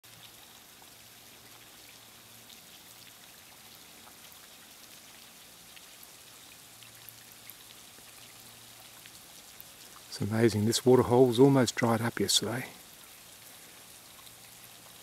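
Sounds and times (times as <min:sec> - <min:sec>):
soft hiss: 0:00.1 - 0:15.0.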